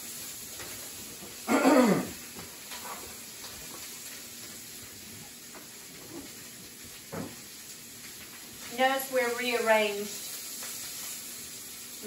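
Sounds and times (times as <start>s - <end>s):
sausage sizzling in a skillet: 0.0s - 12.0s.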